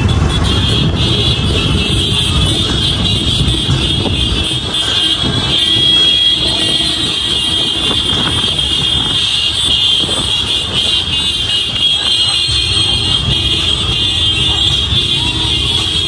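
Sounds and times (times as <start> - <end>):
vehicle engine with road rumble: 0.0 - 16.0.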